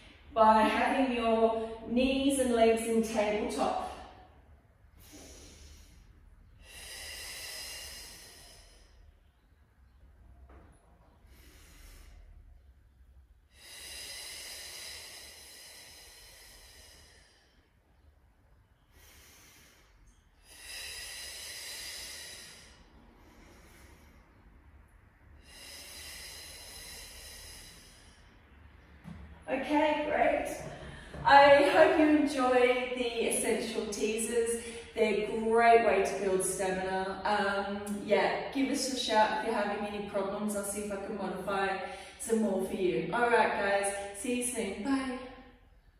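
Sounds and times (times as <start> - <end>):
woman breathing: 0.0 - 0.4, 3.0 - 10.4, 11.0 - 37.3, 40.6 - 42.3.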